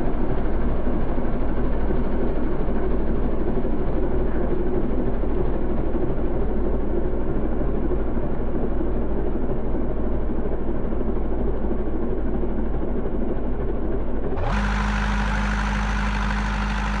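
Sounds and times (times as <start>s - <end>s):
tractor engine running under load: 9.5s - 17.0s.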